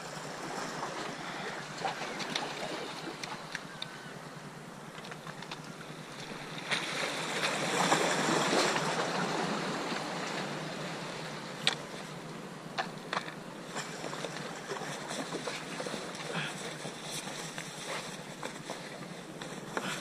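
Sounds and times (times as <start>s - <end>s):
sea water washing among rocks: 5.9s - 12.1s.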